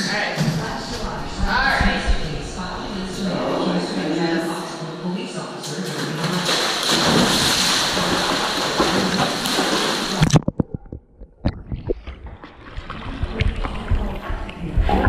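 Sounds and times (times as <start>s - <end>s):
dog paddling splashes: 6.0s - 10.4s
dog splashing into pool: 6.2s - 10.3s.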